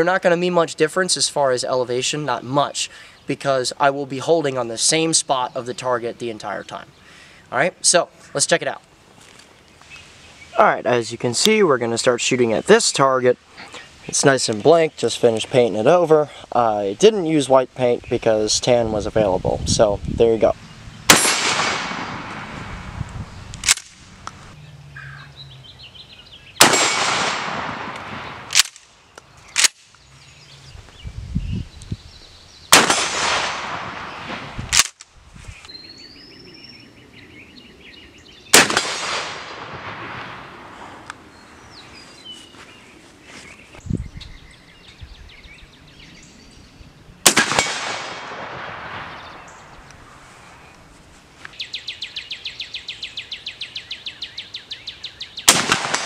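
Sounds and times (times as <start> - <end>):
shotgun shots echoing: 21.1 - 22.6, 26.6 - 28.8, 32.7 - 34.9, 38.5 - 40.7, 47.2 - 49.6, 55.5 - 56.0.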